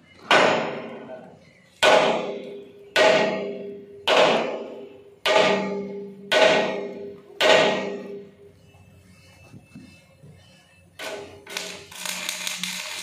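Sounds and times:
hammer striking steel plate: 0.2 - 1.1, 1.8 - 8.3.

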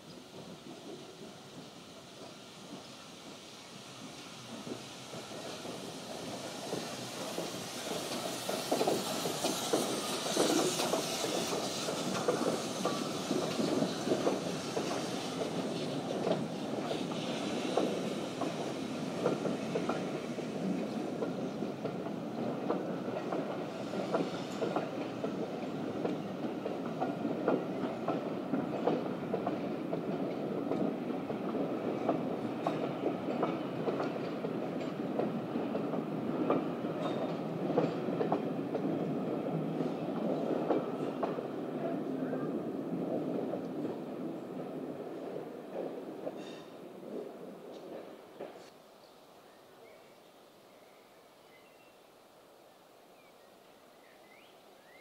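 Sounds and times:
steam locomotive hissing: 0.0 - 48.7
train wheels clicking over rail joints: 0.1 - 48.7.

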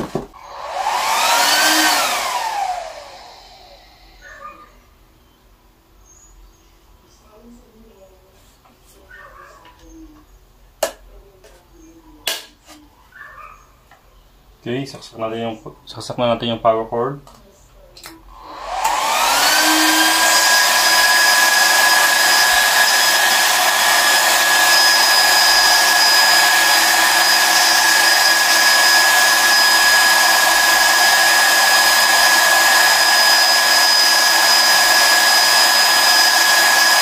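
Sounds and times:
electric cooling fans whining: 0.4 - 4.2, 18.4 - 37.0.

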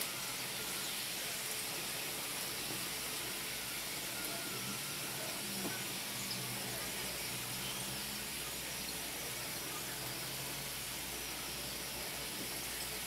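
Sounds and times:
frying hiss in skillet: 0.0 - 13.0.

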